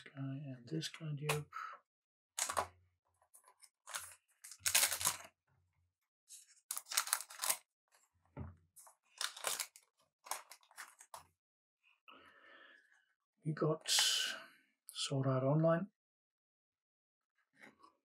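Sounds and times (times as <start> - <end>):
foil card pack tearing: 3.9 - 5.2, 6.7 - 7.6.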